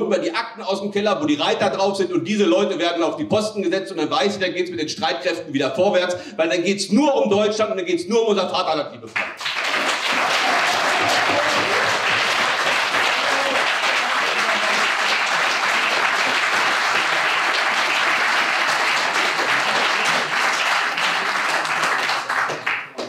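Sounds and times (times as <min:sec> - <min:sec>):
audience applauding: 0:09.1 - 0:23.0.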